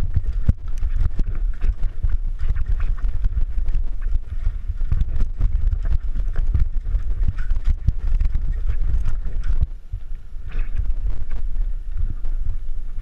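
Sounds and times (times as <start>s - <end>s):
bike frame rattling and knocking: 0.0s - 9.8s
mountain bike rumbling over rocks: 0.0s - 13.0s.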